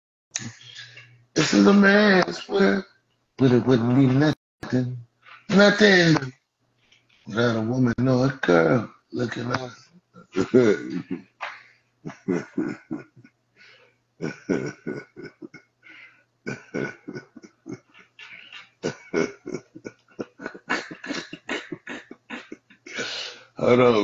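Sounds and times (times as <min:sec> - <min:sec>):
man laughing: 0:10.3 - 0:11.5, 0:12.1 - 0:13.3, 0:14.2 - 0:24.0.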